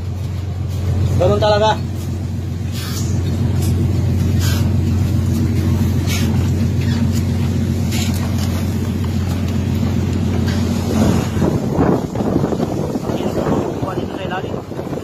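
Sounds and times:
low machinery drone: 0:00.0 - 0:15.0
short hissing splashes: 0:02.6 - 0:04.9.

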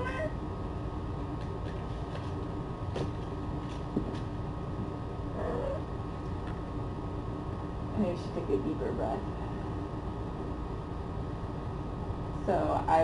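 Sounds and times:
cat mewing: 0:00.0 - 0:00.4
low room hum: 0:00.0 - 0:13.0.

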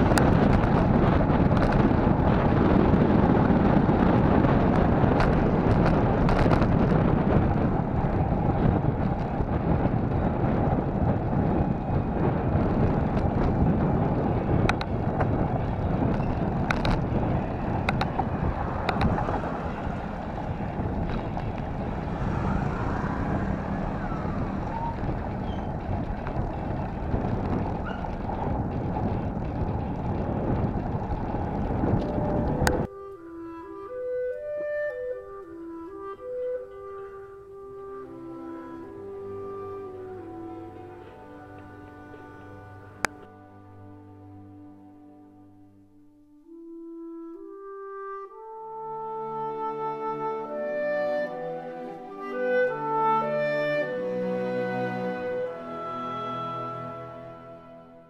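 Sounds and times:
wind buffeting microphone: 0:00.0 - 0:43.4.

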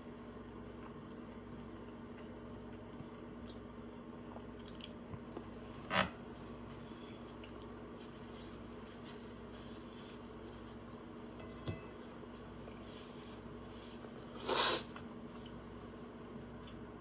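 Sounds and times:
steady low hum: 0:00.0 - 0:17.0
man eating: 0:00.4 - 0:10.6, 0:13.5 - 0:17.0
soft handling noises: 0:06.6 - 0:14.3.

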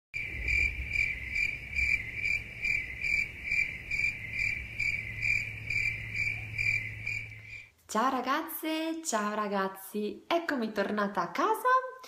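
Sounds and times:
insect trilling: 0:00.2 - 0:07.7
low steady hum: 0:00.2 - 0:08.1.

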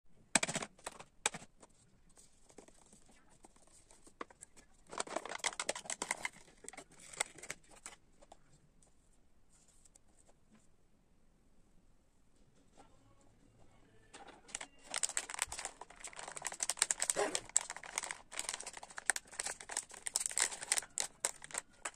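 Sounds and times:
plastic tub seal crackling: 0:14.5 - 0:21.9.

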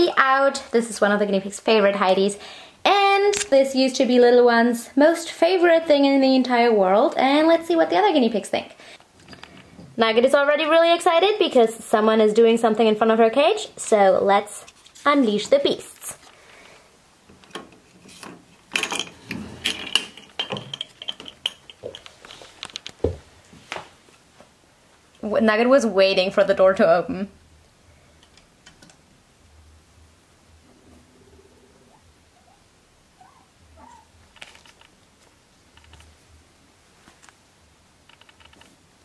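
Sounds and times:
guinea pig squeaks: 0:33.2 - 0:34.7.

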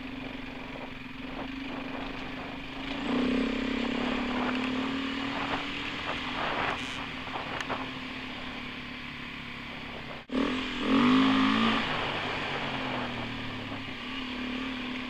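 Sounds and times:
dirt bike engine running: 0:00.0 - 0:15.0.

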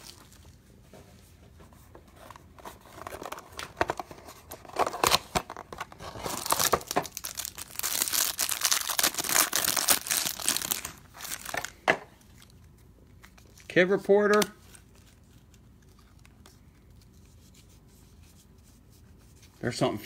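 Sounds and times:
plastic wrapper crinkling and tearing: 0:02.9 - 0:17.2.

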